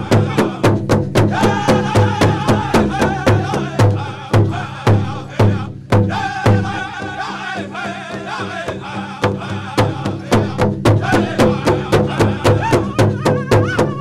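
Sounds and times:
bass drum beating: 0.0s - 14.0s
group singing: 0.0s - 14.0s.

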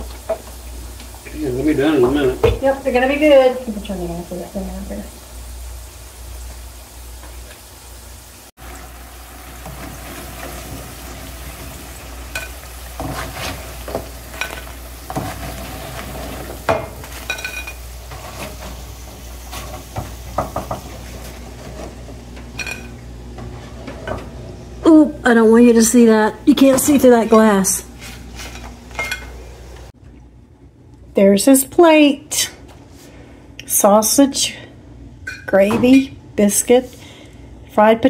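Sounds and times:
potatoes sizzling in oil: 0.0s - 29.9s
spatula scraping and knocking pan: 9.6s - 24.4s.

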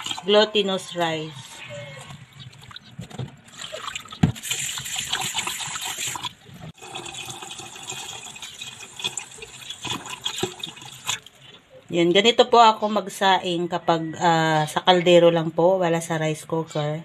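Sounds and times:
tap water running: 0.0s - 0.4s, 3.5s - 11.3s
water splashing in pot: 0.0s - 0.4s, 3.6s - 11.3s.

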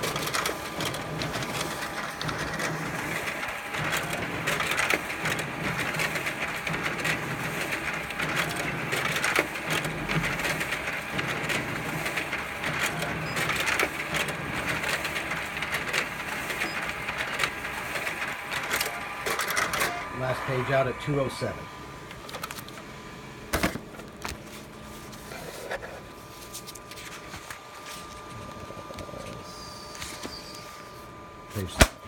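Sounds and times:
copier clicking clatter: 0.0s - 21.2s, 22.1s - 22.9s, 23.5s - 24.6s
office copier printing: 0.0s - 32.0s.

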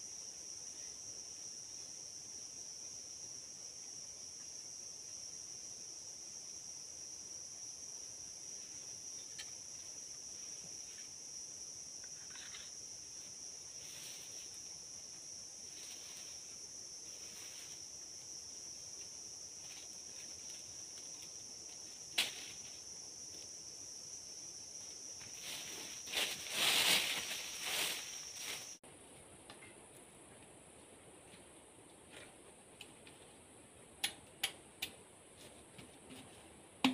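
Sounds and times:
insect chirring: 0.0s - 28.8s
rustling bamboo and dry leaves: 12.2s - 23.5s, 24.8s - 30.2s.

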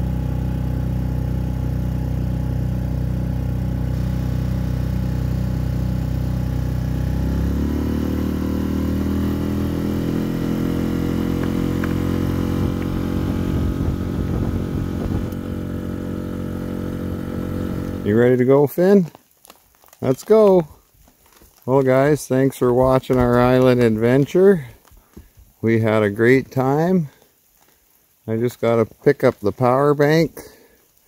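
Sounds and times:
outboard motor running: 0.0s - 18.4s.

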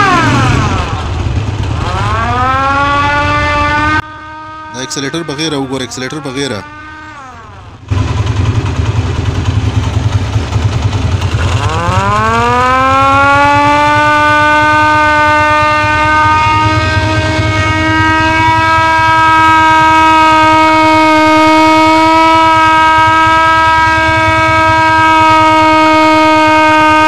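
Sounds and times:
motorcycle engine idling: 0.0s - 4.5s, 6.6s - 20.2s
rotor siren wailing: 0.0s - 27.0s.

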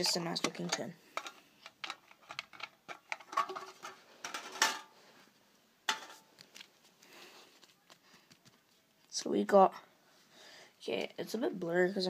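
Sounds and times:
metal tin lid clinking and scraping: 0.0s - 4.9s, 5.9s - 6.3s.

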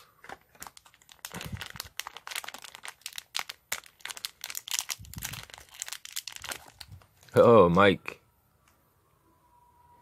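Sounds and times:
foil bag crinkling: 0.0s - 7.4s.

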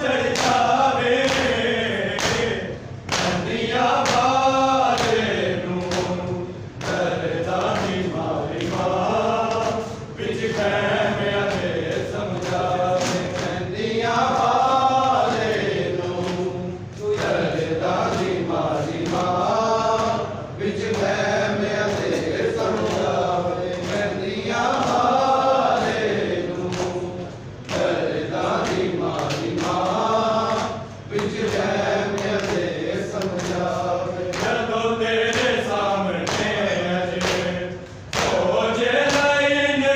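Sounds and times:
men chanting a lament: 0.0s - 39.9s.

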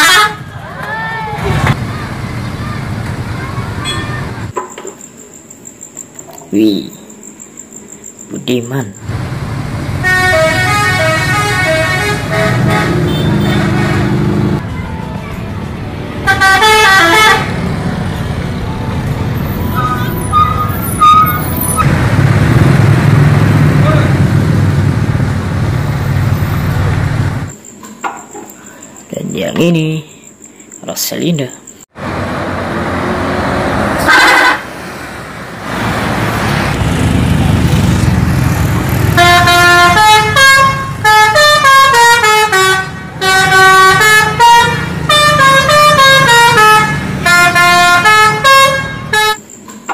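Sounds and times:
bus musical horn: 0.0s - 0.5s, 10.0s - 15.2s, 16.2s - 18.6s, 19.4s - 21.8s, 33.8s - 34.8s, 38.9s - 49.5s
diesel engine rumbling: 0.0s - 4.5s, 9.0s - 27.5s, 32.0s - 49.4s
road noise: 0.0s - 49.9s.

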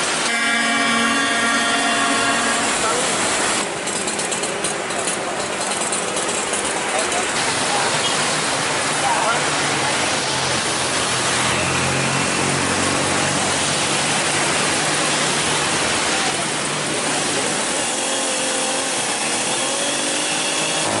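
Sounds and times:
engine running: 0.0s - 21.0s
faint high tones: 0.2s - 3.6s.

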